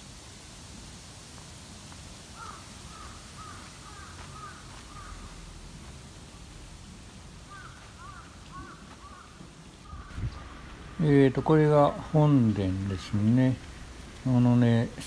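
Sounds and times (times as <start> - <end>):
faint outdoor ambience: 0.0 - 15.0
bird calling: 2.4 - 5.4, 7.5 - 13.7.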